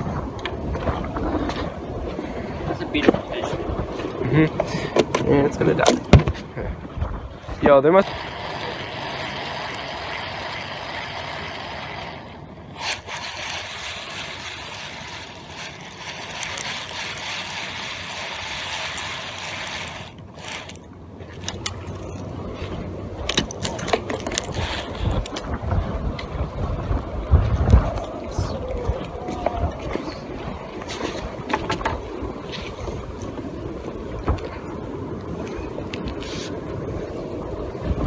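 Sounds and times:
wind buffeting microphone: 0.0s - 10.4s, 12.5s - 38.0s
fishing reel whirring: 8.0s - 22.2s.

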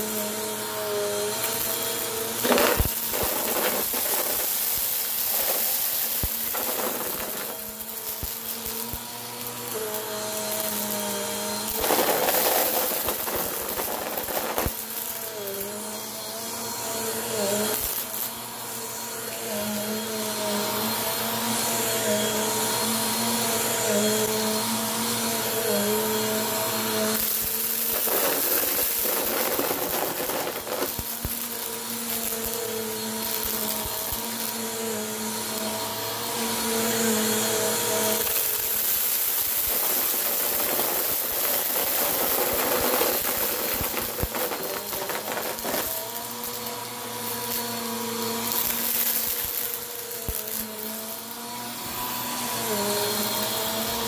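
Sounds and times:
vacuum cleaner running: 0.0s - 54.0s
vacuum sucking up debris: 0.4s - 19.5s, 20.9s - 54.0s.

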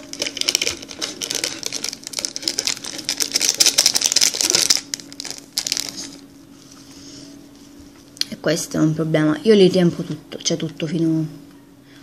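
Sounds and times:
plastic sachets crinkling: 0.0s - 6.3s.

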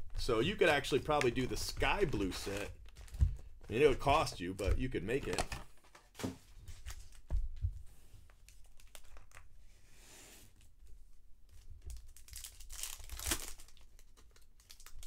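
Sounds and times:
foil wrapper crinkling: 0.4s - 5.9s, 8.5s - 9.4s, 11.5s - 15.0s
foil wrapper tearing open: 12.0s - 15.0s.

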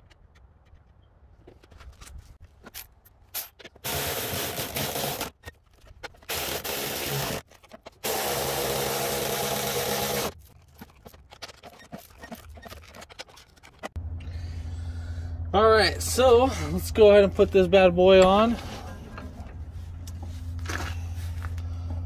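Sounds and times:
power wrench spinning: 3.8s - 5.6s, 6.2s - 7.4s, 8.0s - 13.8s.

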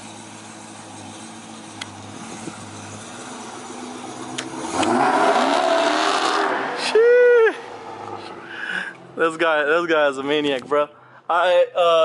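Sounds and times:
car engine rumbling and revving: 0.0s - 9.8s.

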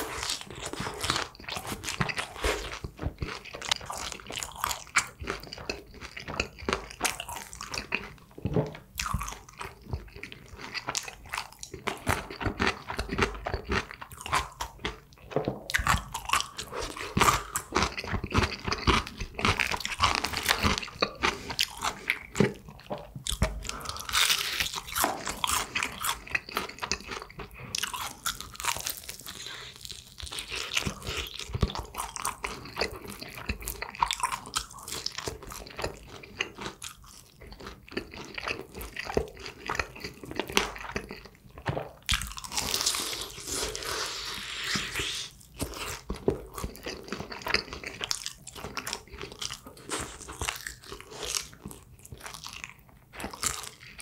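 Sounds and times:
chewing: 0.0s - 54.0s
crunching fried chicken: 0.0s - 54.0s.

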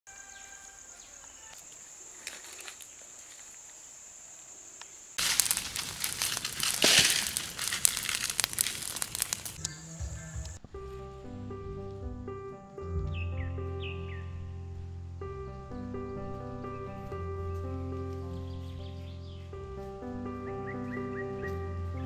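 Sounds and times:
wood fire crackling and popping: 5.2s - 9.8s.

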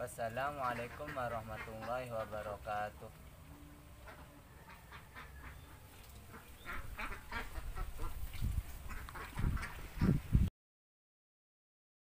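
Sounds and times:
ducks quacking: 0.3s - 10.3s.

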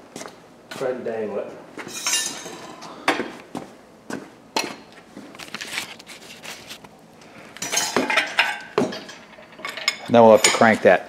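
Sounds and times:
chain clinking: 1.9s - 2.7s, 7.6s - 10.1s.

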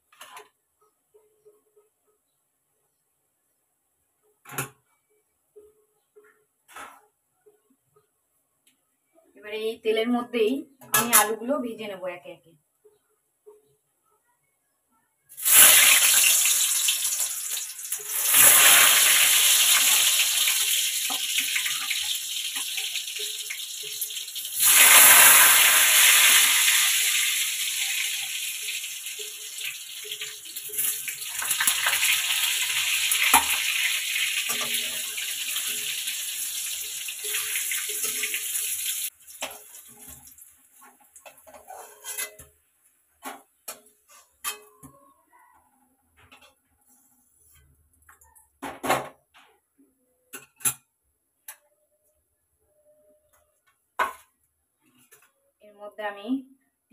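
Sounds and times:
potatoes sizzling in hot oil: 15.4s - 41.3s
metal spatula scraping a pan: 17.9s - 42.6s, 43.7s - 45.1s.

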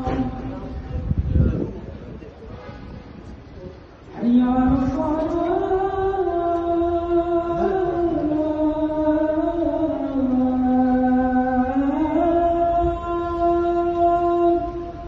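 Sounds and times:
man singing call to prayer: 0.0s - 1.2s, 4.1s - 15.0s.

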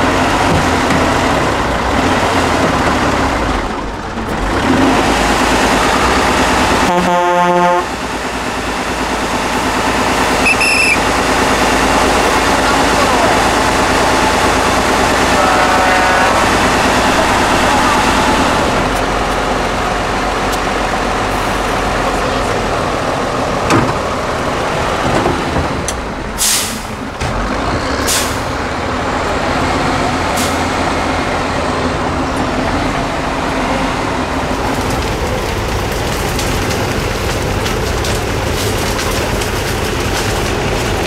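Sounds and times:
truck diesel engine running: 0.0s - 41.0s
short hisses of air: 26.4s - 26.9s.

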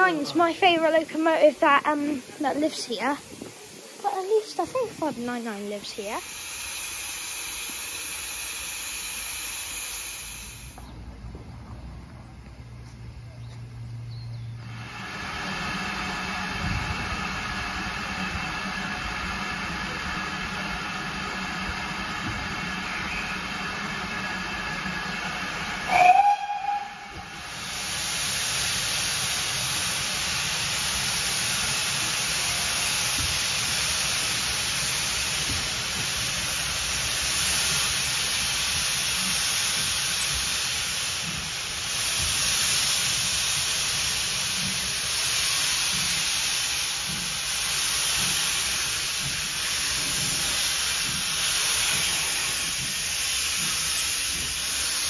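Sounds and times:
loud hiss of steam: 0.0s - 11.2s, 14.5s - 55.0s
steam locomotive whistle: 25.7s - 27.8s.

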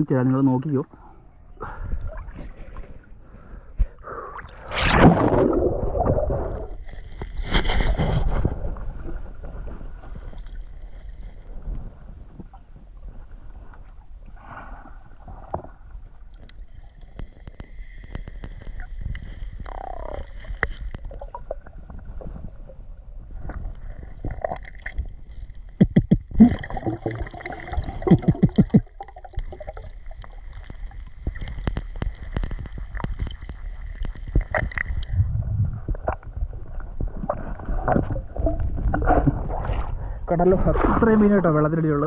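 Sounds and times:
low underwater rumble: 0.8s - 42.0s
gurgling water: 0.9s - 42.0s.

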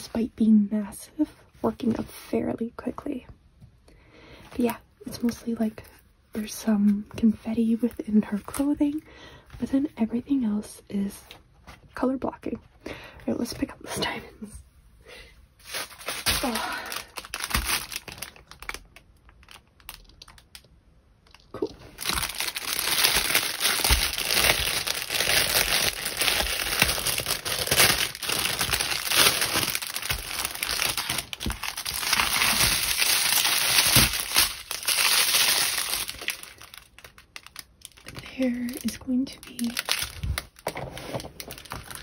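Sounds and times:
plastic bags crinkling: 15.6s - 42.0s.

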